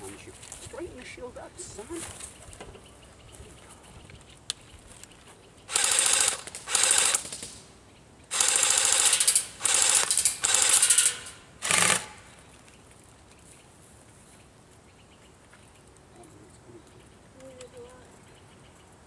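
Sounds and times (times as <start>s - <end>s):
airsoft guns firing full-auto: 5.7s - 7.6s, 8.3s - 12.3s.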